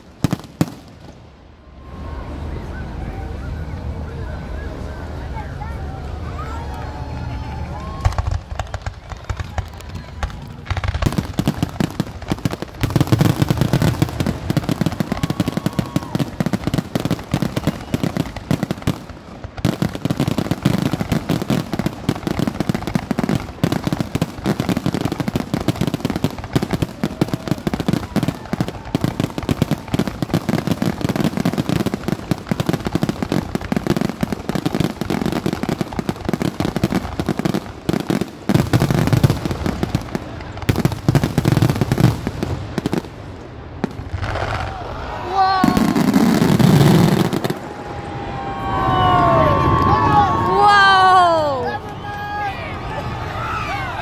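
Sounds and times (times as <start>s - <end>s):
fireworks cracks and bangs: 0.0s - 2.2s, 6.4s - 54.0s.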